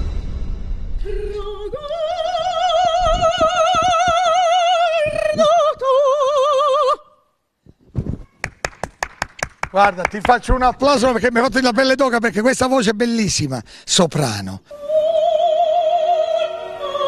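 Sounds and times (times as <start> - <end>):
soprano singing operatic phrase: 14.7 - 17.0.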